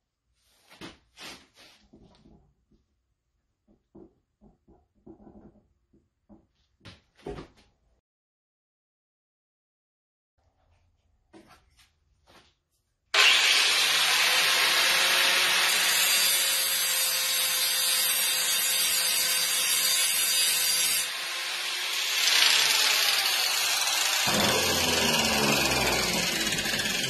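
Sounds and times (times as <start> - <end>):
angle grinder grinding metal: 13.2 - 27.0.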